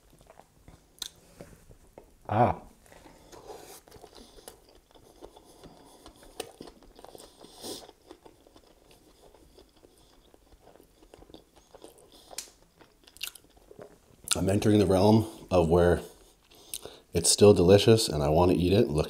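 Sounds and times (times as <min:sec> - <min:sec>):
chewing with crunches: 0:00.0 - 0:02.1, 0:02.8 - 0:14.5, 0:16.1 - 0:17.1
food snapping: 0:12.3 - 0:13.4.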